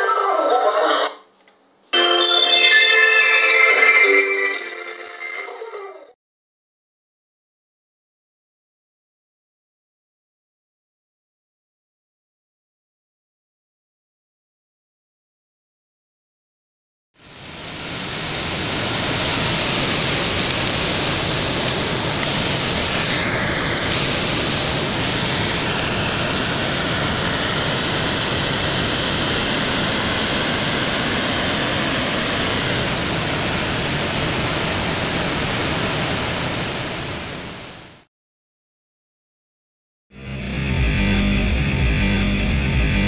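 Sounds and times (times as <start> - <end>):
steady rushing noise: 17.3 - 37.2.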